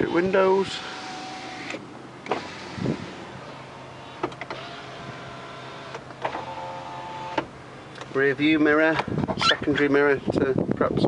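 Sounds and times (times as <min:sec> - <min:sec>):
electric window motors running: 0:00.0 - 0:07.6.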